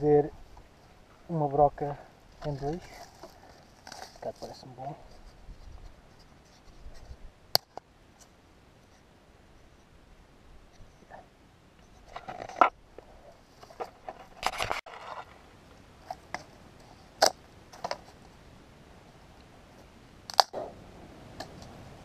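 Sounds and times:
dry cane stalk cracking: 20.3s - 20.5s.

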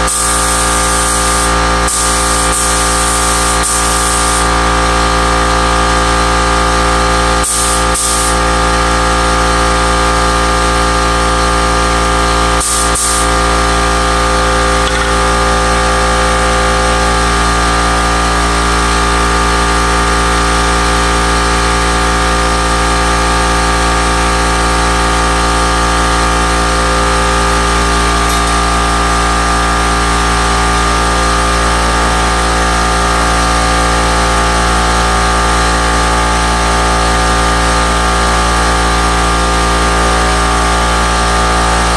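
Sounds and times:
machine motor humming: 0.0s - 5.2s, 12.1s - 19.6s.

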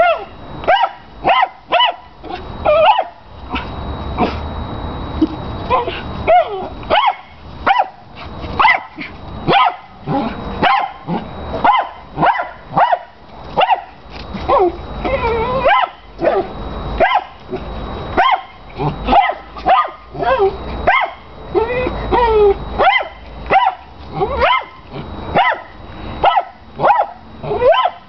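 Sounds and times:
dog barking high-pitched: 0.0s - 2.1s, 2.7s - 4.4s, 5.7s - 8.0s, 8.6s - 14.0s, 15.4s - 17.4s, 18.2s - 28.0s
dog whining: 1.3s - 4.4s, 5.2s - 7.8s, 13.6s - 17.3s, 18.2s - 24.8s, 26.2s - 28.0s.

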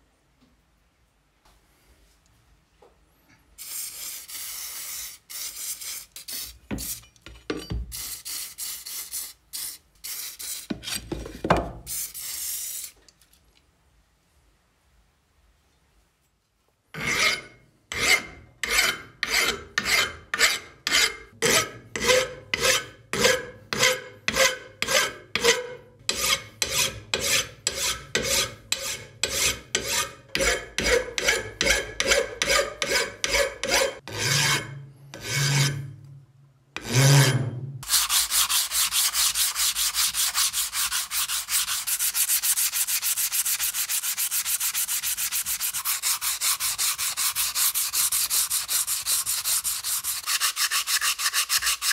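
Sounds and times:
file rasping on steel: 17.0s - 35.9s, 36.8s - 51.9s
hand sanding steel: 22.0s - 34.6s, 37.8s - 51.9s.

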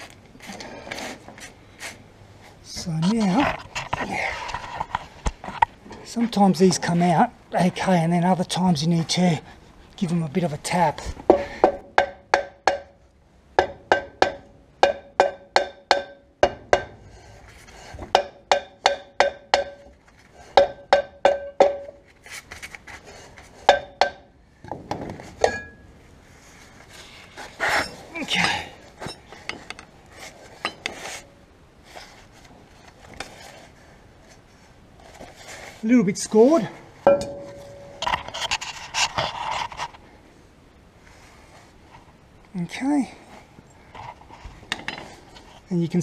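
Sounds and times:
hammer striking metal brake drum: 13.6s - 17.0s, 37.1s - 38.0s.

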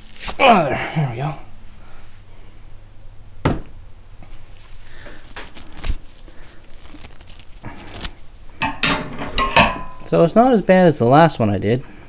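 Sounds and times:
cloth rag rustling: 4.3s - 8.3s
metal parts knocking: 8.6s - 10.1s
sharp metallic clink: 8.6s - 10.2s.

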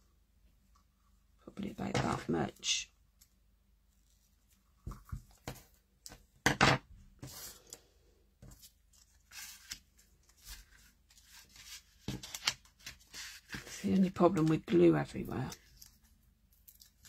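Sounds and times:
ribbon and card rustling: 8.4s - 17.0s.

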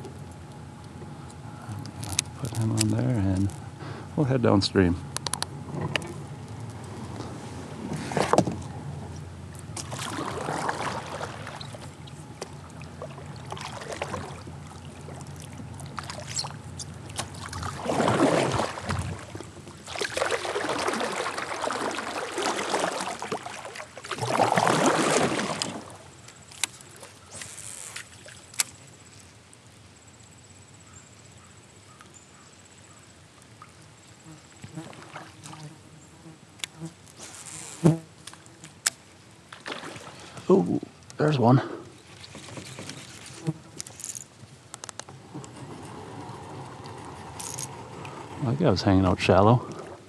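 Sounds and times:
kayak paddling splashes: 5.6s - 29.0s, 32.8s - 35.9s, 39.4s - 50.0s.

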